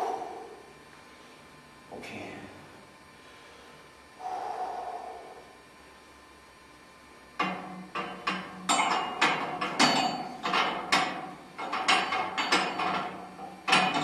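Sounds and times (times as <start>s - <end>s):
barbell metallic clanks: 7.4s - 14.0s.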